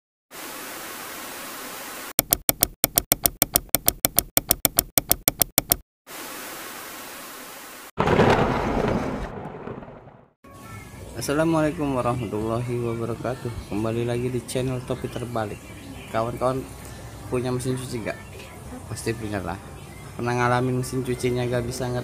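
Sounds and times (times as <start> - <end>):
rapid evenly spaced clicks: 2.2 - 5.8.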